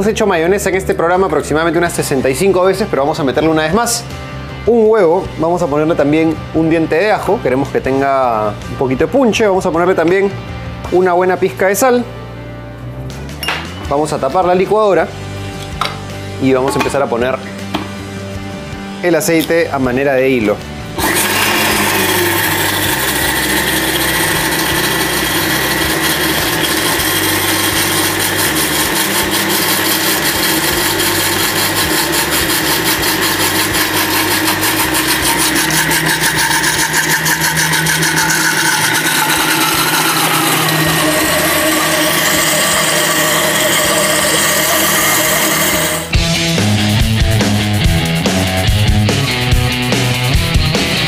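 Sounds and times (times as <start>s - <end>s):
blender motor running: 21.0s - 46.1s.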